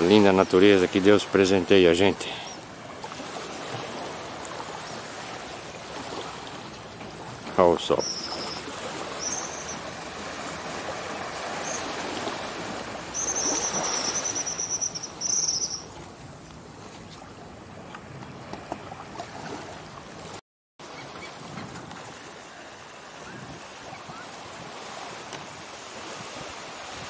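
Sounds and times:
small waves washing on beach: 0.0s - 27.0s
high-pitched trilling calls: 8.0s - 9.8s, 13.2s - 15.9s.

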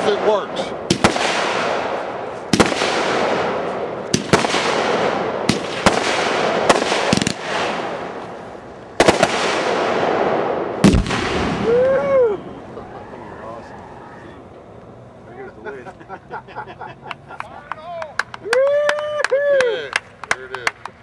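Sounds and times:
firework bangs: 0.0s - 14.3s
firework hissing and crackling: 0.0s - 14.5s.

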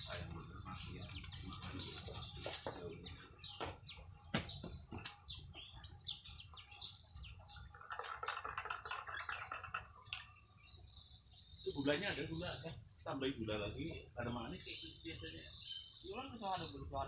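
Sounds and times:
birds chirping: 0.0s - 17.0s
insects trilling: 0.0s - 17.0s
cups and utensils clicking: 7.7s - 10.3s.

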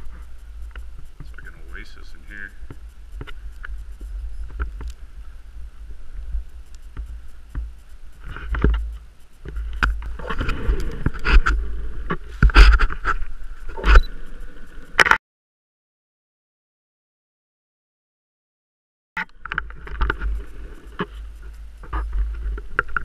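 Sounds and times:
wind buffeting microphone: 0.0s - 14.5s
knocks and rustles: 6.2s - 14.0s.

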